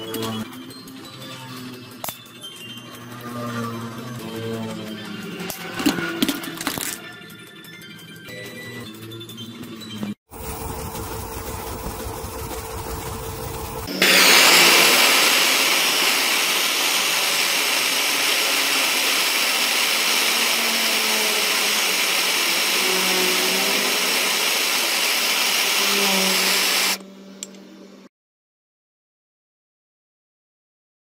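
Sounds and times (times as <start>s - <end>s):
lathe motor humming: 10.3s - 27.0s
blowtorch flame hissing: 13.7s - 27.0s.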